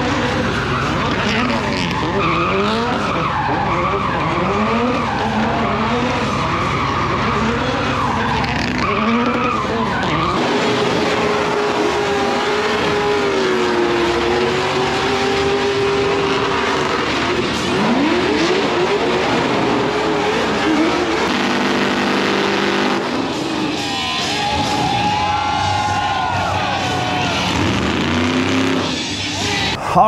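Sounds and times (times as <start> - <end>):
car engine revving: 0.0 - 29.7.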